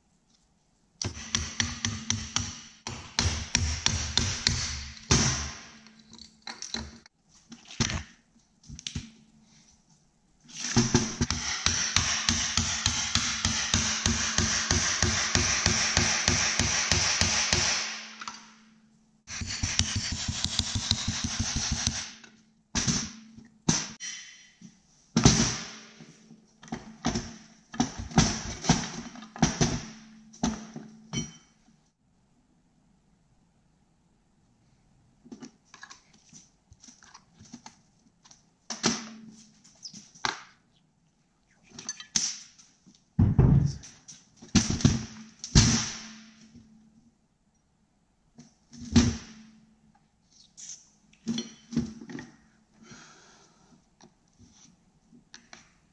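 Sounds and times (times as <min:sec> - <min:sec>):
metal parts clanking: 0:05.8 - 0:07.1.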